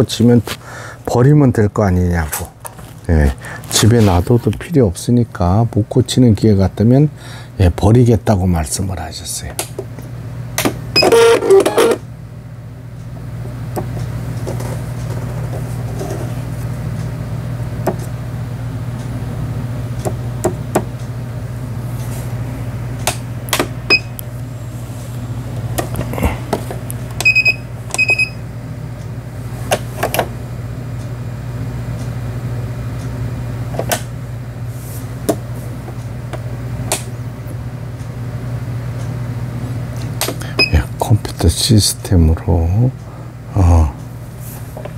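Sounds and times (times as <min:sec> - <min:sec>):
sewing machine motor hum: 0:10.9 - 0:12.0
short electronic beeps: 0:27.2 - 0:28.4.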